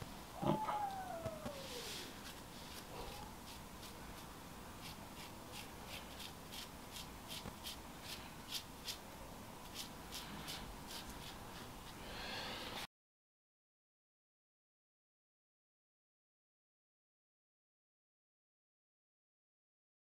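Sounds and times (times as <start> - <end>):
brush stroking through hair: 1.6 - 9.0.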